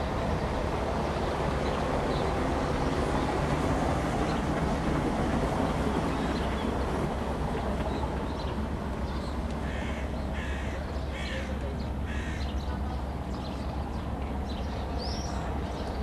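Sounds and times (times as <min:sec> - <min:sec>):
crow cawing: 0:09.6 - 0:11.5, 0:12.1 - 0:12.5.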